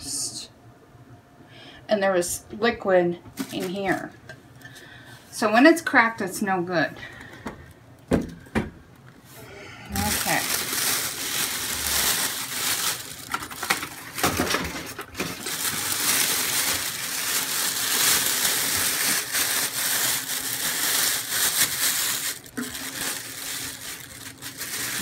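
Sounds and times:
packaging rustling and crinkling: 3.4 - 4.2, 9.9 - 25.0.

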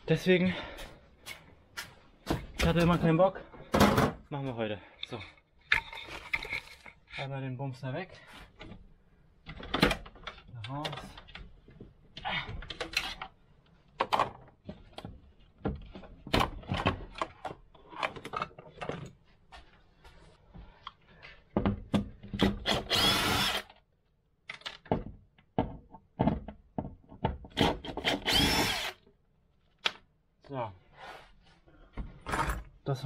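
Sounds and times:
cordless drill running: 22.6 - 23.8, 28.0 - 29.0.

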